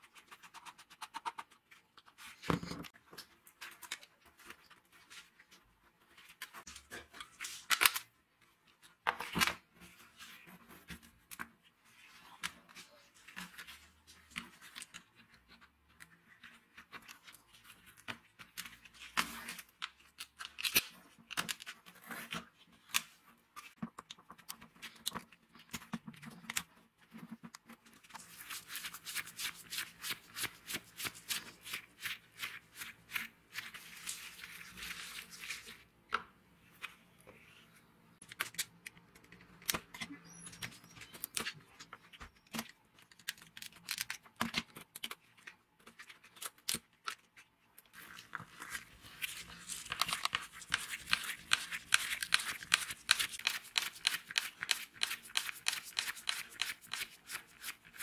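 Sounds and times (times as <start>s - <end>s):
plastic parts clicking and scraping: 38.2s - 58.0s.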